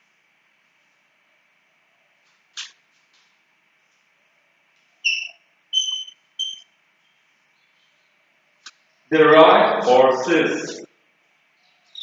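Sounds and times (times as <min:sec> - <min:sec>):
chalk squeaking on blackboard: 0:05.0 - 0:06.6.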